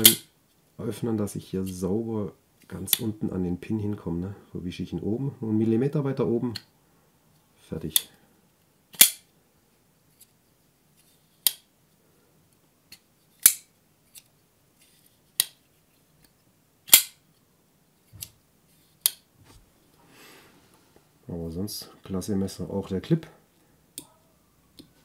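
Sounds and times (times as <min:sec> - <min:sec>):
knife blade locking snap: 0:09.0 - 0:09.2, 0:16.9 - 0:17.2.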